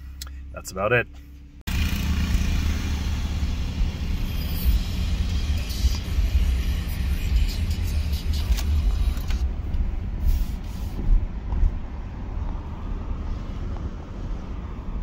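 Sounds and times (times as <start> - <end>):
road noise: 0.0 - 15.0
truck engine rumble: 0.0 - 15.0.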